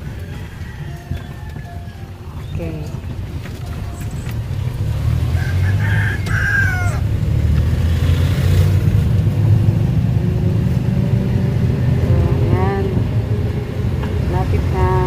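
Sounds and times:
rooster crowing: 0.0s - 2.4s, 5.2s - 7.1s
vehicle engine drone: 0.0s - 15.0s.

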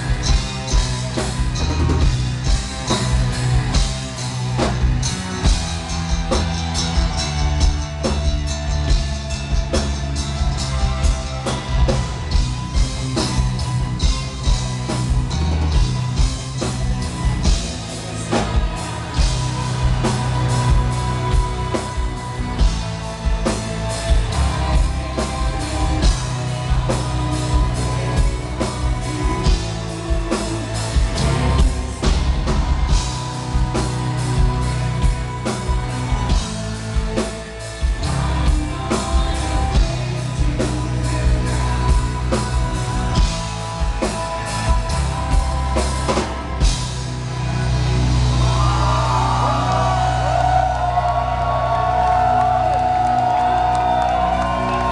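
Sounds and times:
fast dense drumming: 0.0s - 47.1s
live metal band playing: 0.0s - 54.9s
man singing: 24.3s - 32.2s, 33.3s - 45.8s
woman singing: 38.0s - 44.8s.

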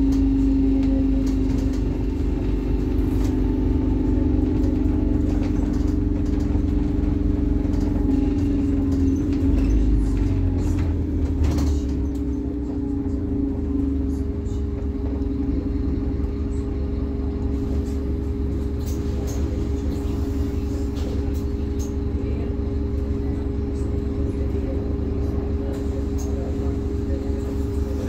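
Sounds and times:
bus engine rumbling: 0.0s - 28.0s.

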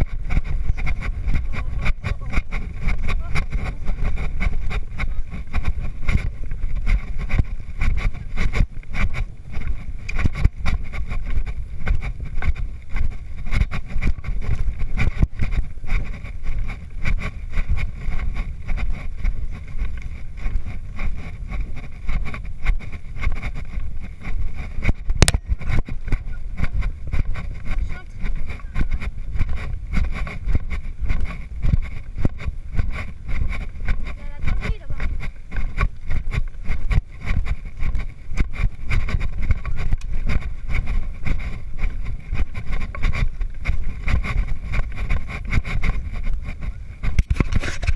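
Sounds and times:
horse hooves cantering on sand: 0.0s - 47.9s
wind rumbling over microphone: 0.0s - 47.9s.

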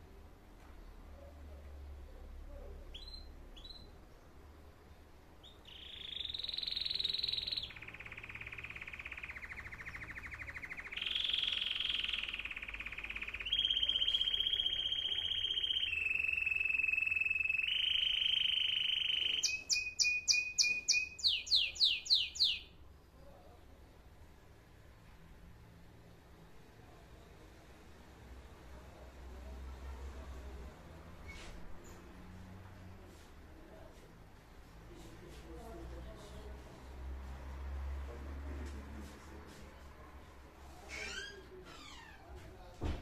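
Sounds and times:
canary singing trills: 2.8s - 4.0s, 5.4s - 22.8s.

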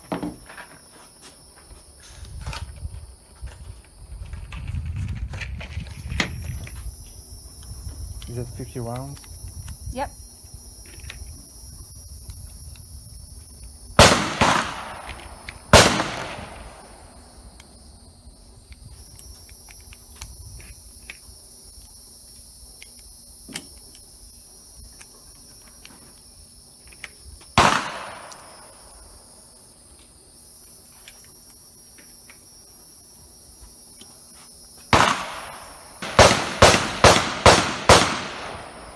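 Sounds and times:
loud echoing gunshots: 14.0s - 17.0s, 27.6s - 28.8s, 34.9s - 38.9s.

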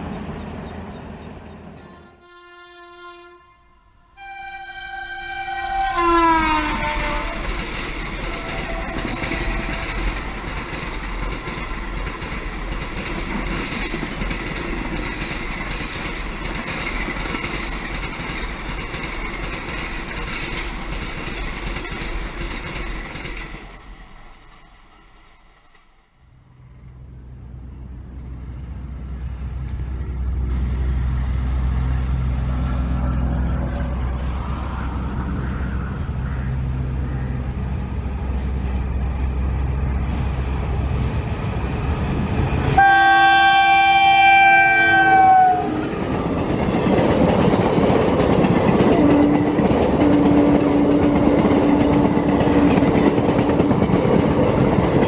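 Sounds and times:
low rumble of approaching train: 0.0s - 55.0s
train wheels roaring on rail: 0.0s - 55.0s
train horn: 1.8s - 10.4s, 42.7s - 45.9s.

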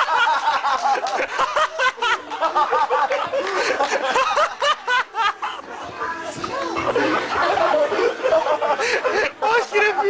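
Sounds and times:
people laughing: 0.0s - 10.0s.

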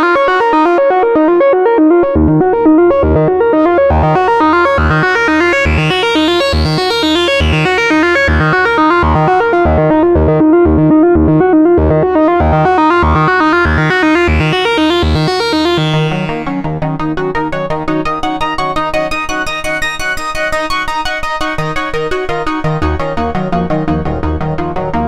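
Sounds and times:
synthesizer arpeggio: 0.0s - 18.8s
pulsing synth bass: 0.8s - 17.6s.

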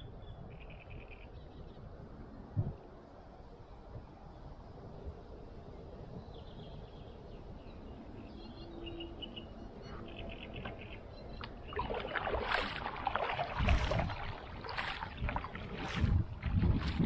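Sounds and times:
paddle splashing in water: 11.4s - 17.0s.

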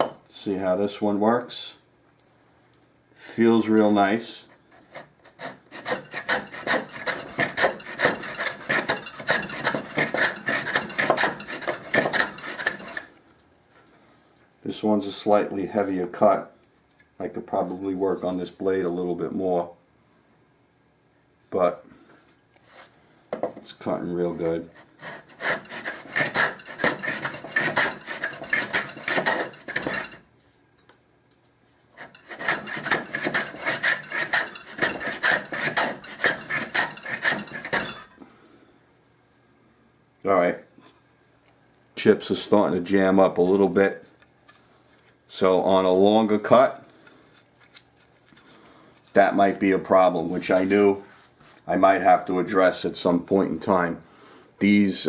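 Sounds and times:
hand plane scraping wood: 4.4s - 13.1s, 24.4s - 30.2s, 32.0s - 38.0s.

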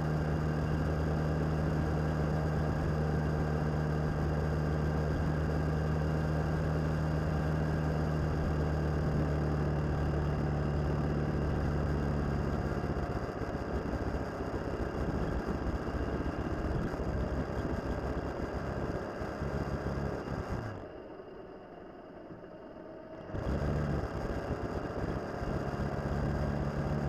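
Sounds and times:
motorcycle engine cruising: 0.0s - 21.0s, 23.2s - 27.0s.

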